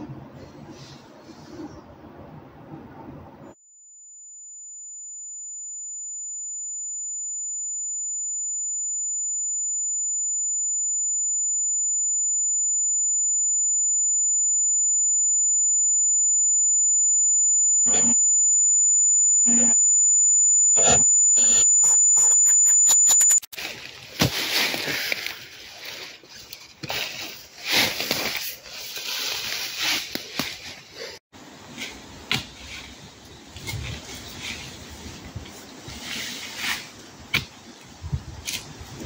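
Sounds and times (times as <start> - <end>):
high-pitched electronic tone: 3.8 - 23.5.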